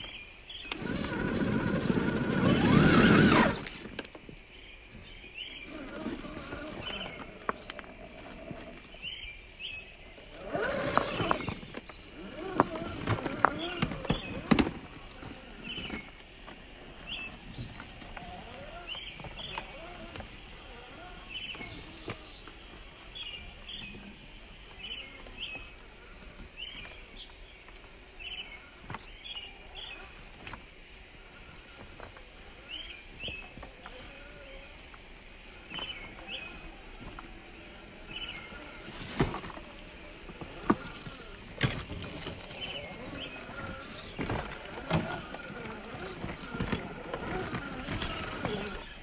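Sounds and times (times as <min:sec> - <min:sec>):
rc crawler knocking on rocks: 0:00.0 - 0:04.4, 0:10.4 - 0:22.9, 0:34.9 - 0:49.0.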